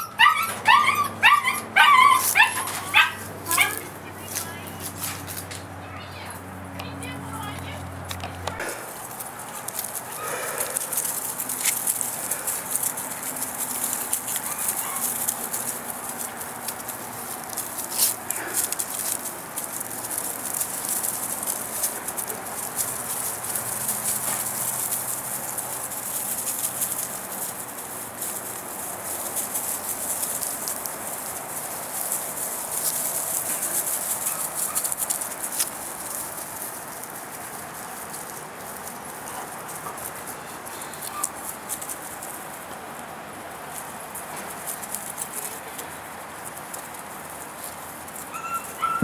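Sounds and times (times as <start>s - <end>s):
puppy yips and squeaks: 0.0s - 3.8s, 41.0s - 41.4s, 48.3s - 49.0s
puppies play-fighting: 0.0s - 6.8s, 7.4s - 49.0s.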